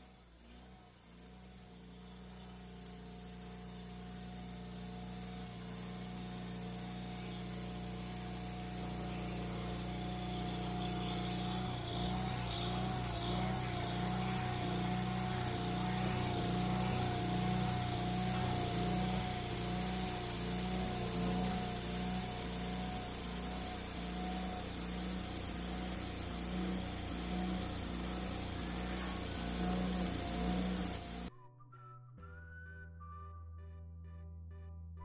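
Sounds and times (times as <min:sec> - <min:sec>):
band sawmill running: 0:00.0 - 0:31.3.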